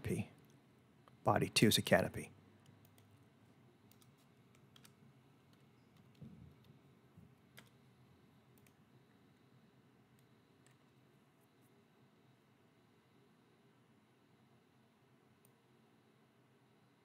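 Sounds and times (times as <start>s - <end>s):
keyboard and mouse clicks: 3.9s - 6.8s, 7.5s - 7.8s.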